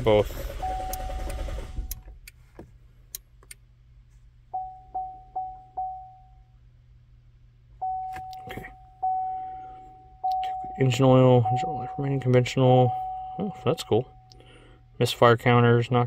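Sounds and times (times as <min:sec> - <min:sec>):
low steady hum: 0:00.0 - 0:16.0
electronic warning chime: 0:07.8 - 0:14.3.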